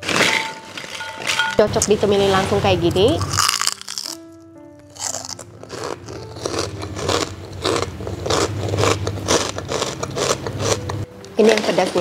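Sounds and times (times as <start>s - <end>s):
crunchy food being chewed: 3.2s - 4.2s, 4.9s - 11.0s.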